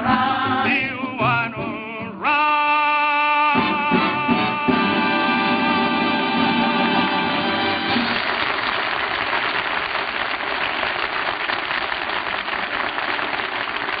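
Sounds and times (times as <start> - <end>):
audience applauding: 7.5 - 14.0.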